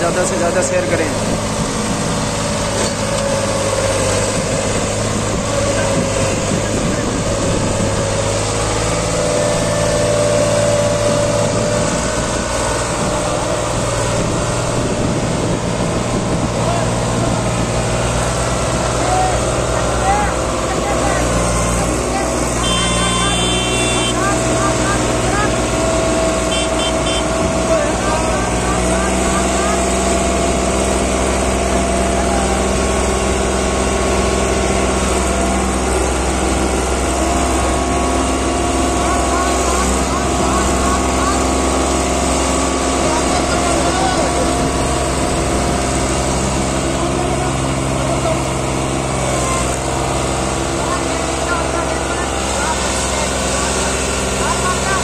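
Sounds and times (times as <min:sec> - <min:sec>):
tractor diesel engine under load: 0:00.0 - 0:55.0.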